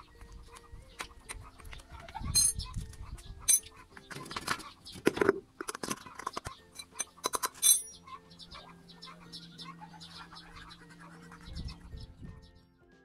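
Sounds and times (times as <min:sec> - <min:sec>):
metal clinks and scrapes: 0:02.3 - 0:02.8, 0:03.4 - 0:08.0
sharp metal clank: 0:05.6 - 0:08.0.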